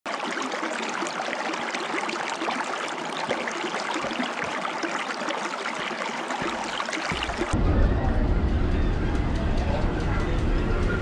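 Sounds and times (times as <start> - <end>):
water trickling over rocks: 0.1 - 7.6.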